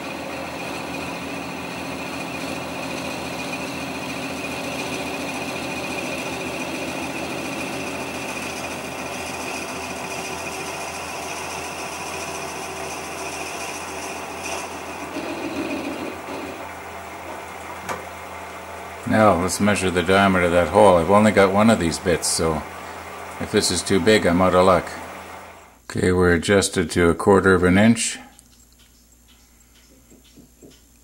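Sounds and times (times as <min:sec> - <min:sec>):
drill bit boring into wood: 0:00.0 - 0:25.7
wood lathe running: 0:00.0 - 0:25.8.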